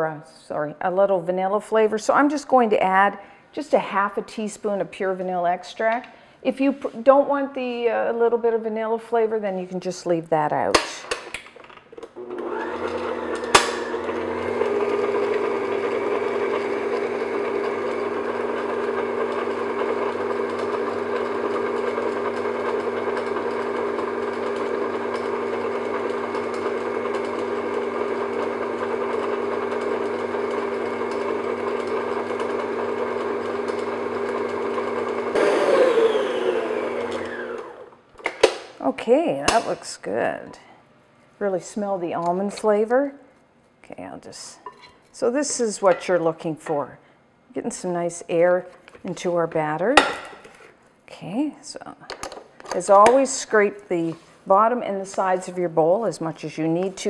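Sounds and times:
stand mixer running: 12.2 - 37.9.

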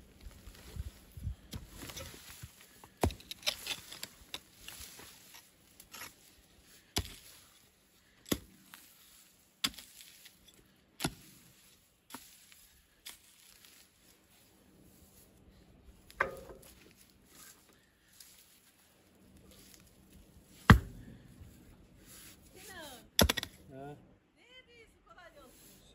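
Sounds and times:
soil scraping and rustling: 0.0 - 23.7
hoe striking earth: 1.5 - 6.3, 7.0 - 7.5, 8.2 - 8.9, 9.6 - 11.4, 16.0 - 17.1, 20.5 - 21.4, 23.1 - 23.6.

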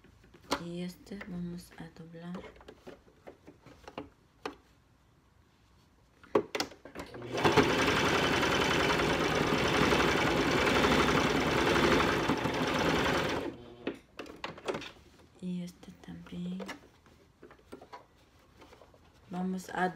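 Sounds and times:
electric sewing machine stitching: 7.0 - 13.9.

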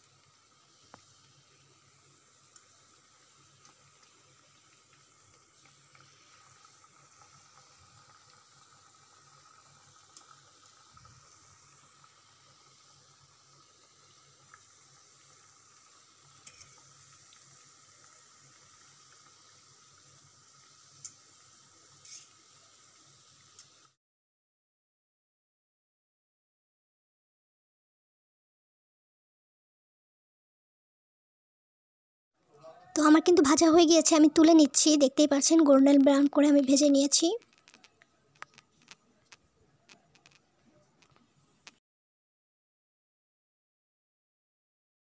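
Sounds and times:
pastries sizzling in oil: 0.0 - 24.0, 33.0 - 41.8.

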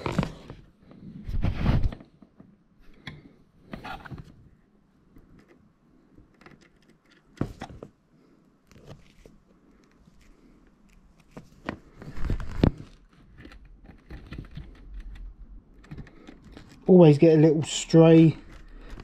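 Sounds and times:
wire handling clicks and rustling: 5.1 - 8.0, 8.6 - 19.0.

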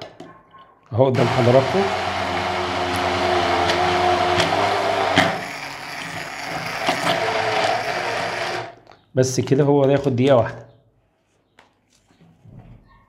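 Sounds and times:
blender clicks: 1.2 - 8.8
stick blender motor whine: 1.2 - 8.8.

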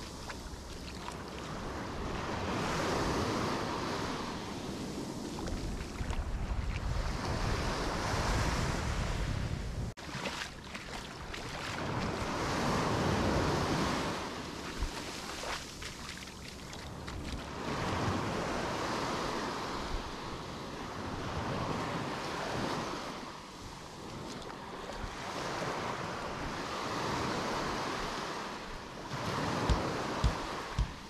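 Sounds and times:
wind buffeting microphone: 0.0 - 9.9
waves washing onto beach: 0.0 - 31.0.

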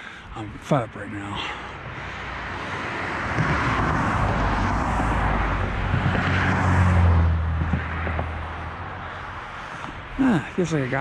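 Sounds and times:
vehicle driving past: 2.2 - 9.6.

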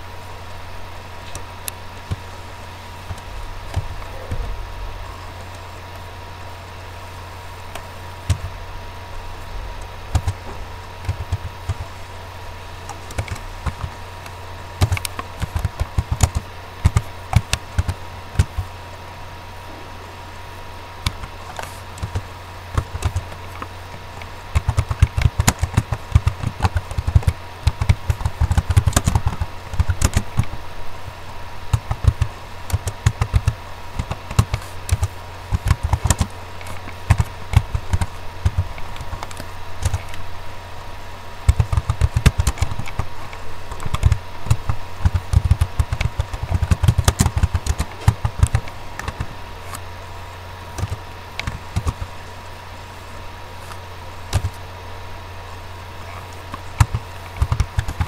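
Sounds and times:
steady low hum: 0.0 - 58.0
keyboard keystroke clicks: 11.0 - 11.9, 31.7 - 40.2, 41.5 - 49.8, 50.8 - 52.1, 54.3 - 54.6, 56.8 - 58.0.

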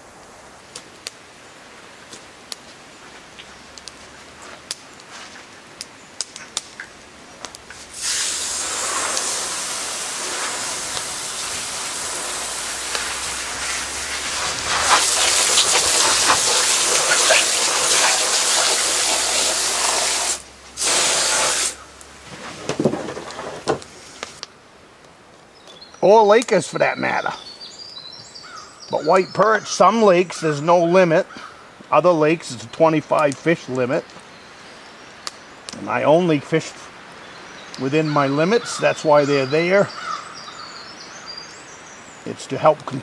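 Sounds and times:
water spraying onto fish: 7.8 - 21.8.

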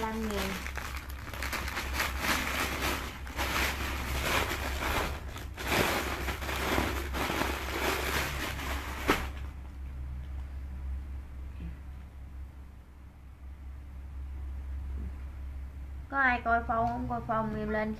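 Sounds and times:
plastic packaging crinkling: 0.0 - 9.6
low electrical hum: 0.0 - 17.9.

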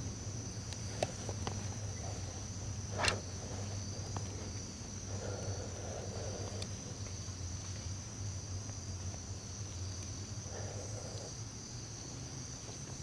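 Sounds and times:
insects trilling: 0.0 - 13.0
short rustle: 0.9 - 4.6
faint ticks: 5.2 - 7.9.

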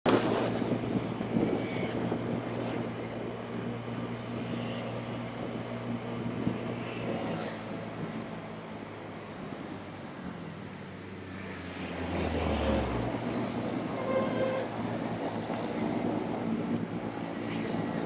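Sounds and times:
wind and road noise: 0.1 - 18.0
small motorbike engine running: 3.6 - 7.9.

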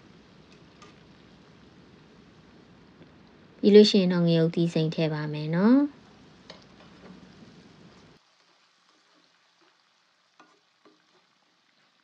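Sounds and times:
vegetables sizzling in oil: 0.0 - 12.0
spatula tapping on pan: 10.4 - 11.2.

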